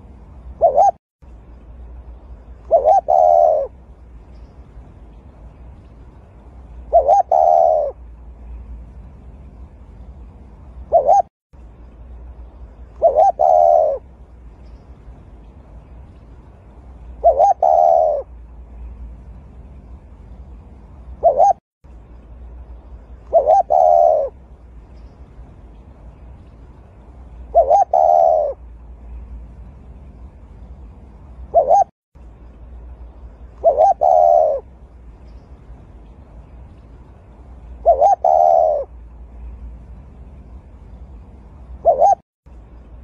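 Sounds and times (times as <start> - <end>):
dove cooing: 0.5 - 1.0, 2.6 - 3.8, 6.8 - 8.0, 10.9 - 11.3, 13.0 - 14.1, 17.2 - 18.3, 21.2 - 21.6, 23.2 - 24.4, 27.5 - 28.6, 31.5 - 31.9, 33.6 - 34.7, 37.8 - 38.9, 41.8 - 42.2.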